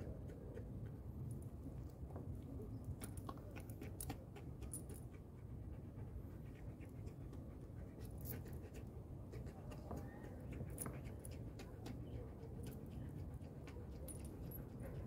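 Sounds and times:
dog panting: 0.0 - 1.6, 3.0 - 15.0.

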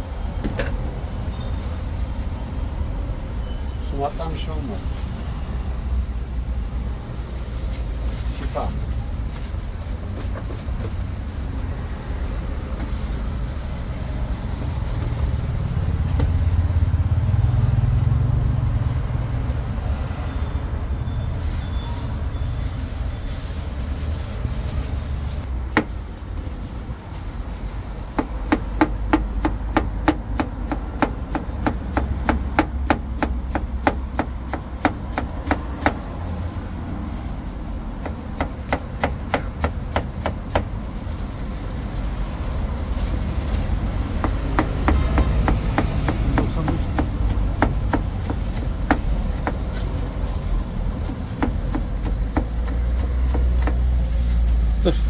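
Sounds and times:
low rumble of traffic: 0.0 - 55.0
knife chopping on wooden board: 44.2 - 49.6, 51.0 - 53.9.

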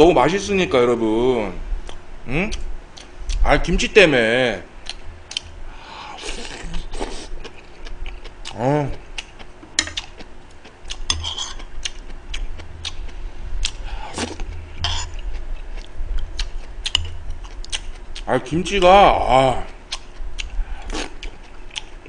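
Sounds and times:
utensils clicking on bowls: 9.7 - 10.2.

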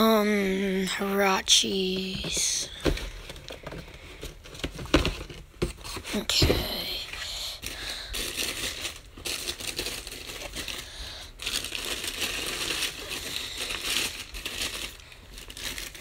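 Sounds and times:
tissue paper crinkling and rustling: 3.0 - 16.0.

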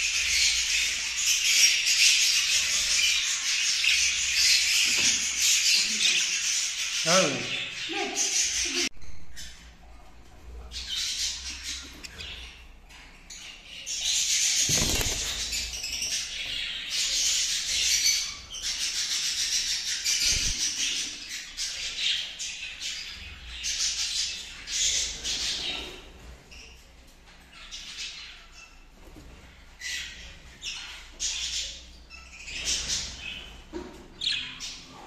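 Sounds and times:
budgerigars chattering and warbling: 13.3 - 26.0.

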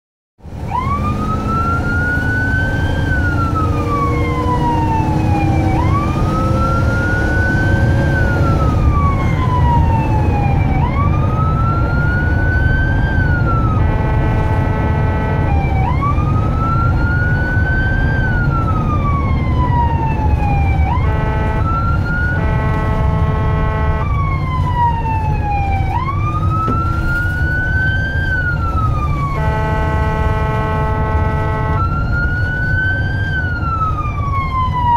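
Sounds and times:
ambulance siren wailing: 0.4 - 34.9
engine and road rumble: 0.4 - 34.9
horn blast: 13.7 - 15.7, 20.9 - 24.2, 29.2 - 32.0.

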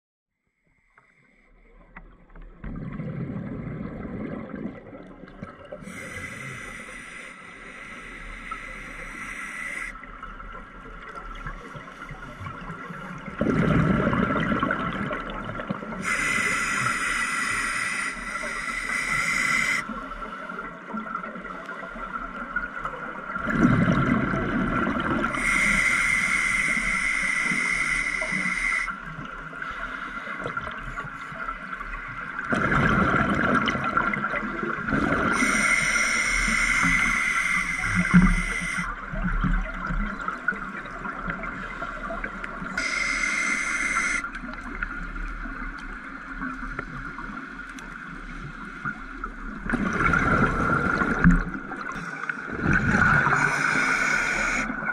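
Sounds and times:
scuba regulator breathing underwater: 5.8 - 10.1, 15.9 - 20.6, 24.6 - 31.0, 32.5 - 39.0, 42.6 - 44.5, 49.7 - 54.9.

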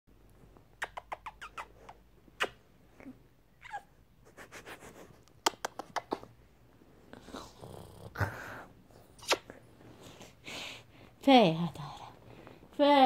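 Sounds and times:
kissing smacks: 0.7 - 2.6, 5.3 - 6.3, 9.2 - 9.6.

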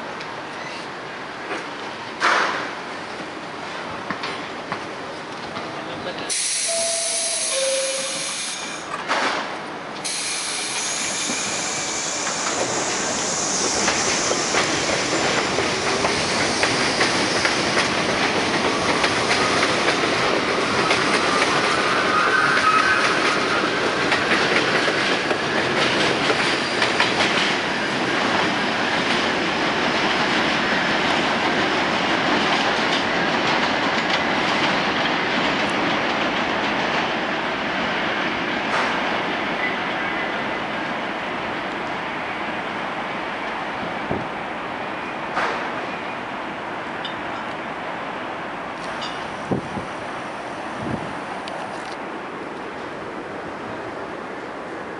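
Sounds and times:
train wheels clattering: 6.3 - 31.6
train doors knocking shut: 45.3 - 45.7.

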